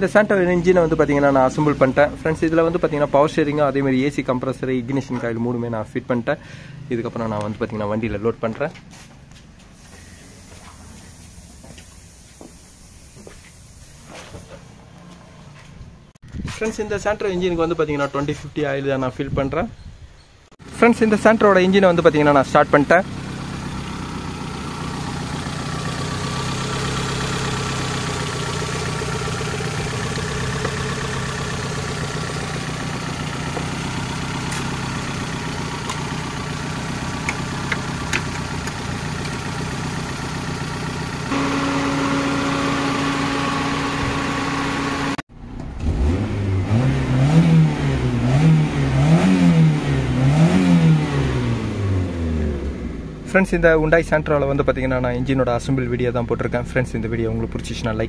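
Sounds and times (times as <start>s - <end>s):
car engine idling and revving: 0.0s - 16.2s, 20.6s - 58.0s
steady higher hum: 41.3s - 45.2s.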